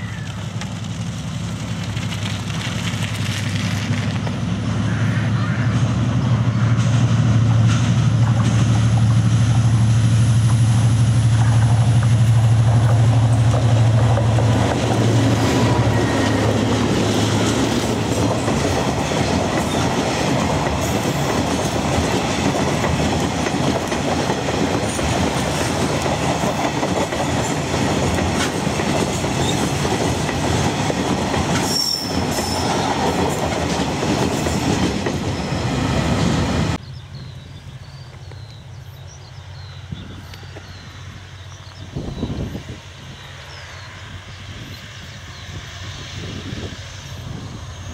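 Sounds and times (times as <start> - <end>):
diesel locomotive droning: 0.0 - 47.9
steel wheels clattering on rails: 10.4 - 36.3
high-pitched wheel squeal: 31.6 - 32.9.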